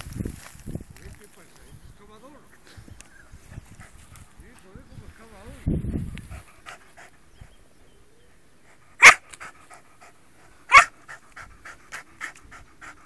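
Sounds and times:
dog panting: 3.5s - 4.6s, 6.1s - 7.5s, 8.6s - 13.0s
dog barking: 9.0s - 9.3s, 10.7s - 11.0s.

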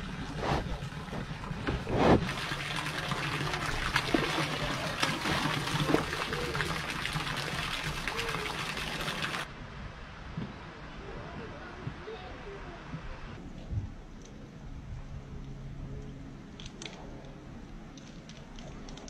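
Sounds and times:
water splashing in a tank: 0.0s - 9.5s
water trickling: 0.0s - 9.5s.

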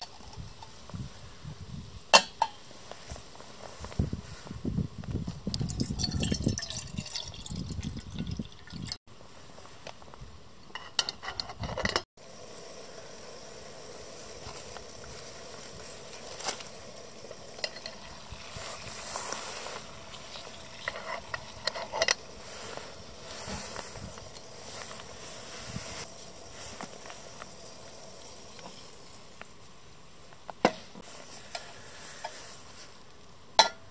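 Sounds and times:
kettle ticking as it heats: 5.5s - 9.0s, 13.2s - 19.0s, 19.8s - 25.2s, 26.1s - 29.5s
water pouring into a pot: 5.5s - 9.0s, 14.4s - 22.4s
camp stove hissing: 9.3s - 33.8s.

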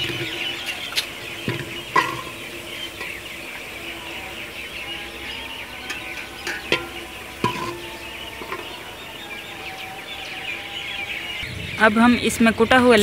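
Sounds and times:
ladle scraping a pot: 0.0s - 9.6s
birds chirping: 0.0s - 13.0s.

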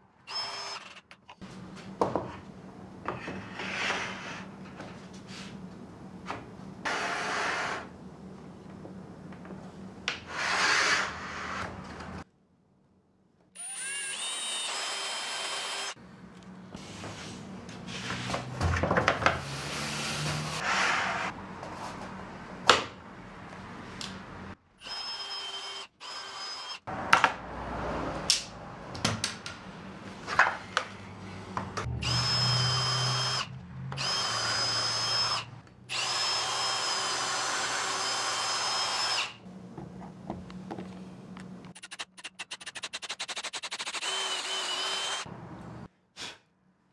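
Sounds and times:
power drill whining: 0.3s - 1.1s, 13.6s - 16.0s, 24.8s - 26.8s, 32.0s - 39.4s, 42.6s - 45.3s.

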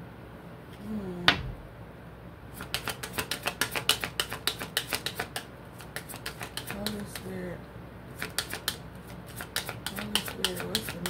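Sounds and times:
cards being shuffled: 2.6s - 7.3s, 8.2s - 11.0s.

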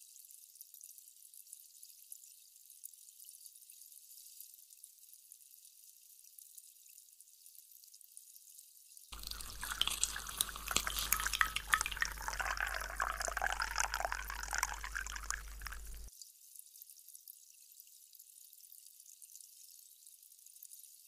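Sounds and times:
carbonation fizzing: 9.2s - 16.1s
soda poured over ice: 9.2s - 16.1s.

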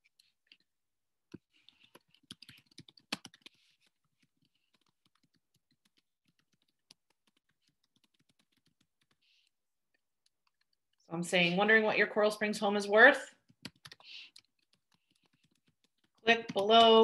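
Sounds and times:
typing on a computer keyboard: 1.7s - 9.5s, 13.4s - 17.0s.

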